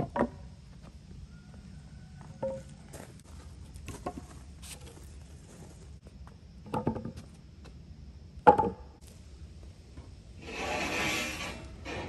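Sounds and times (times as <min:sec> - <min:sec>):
wooden boards knocking together: 0:08.4 - 0:08.8.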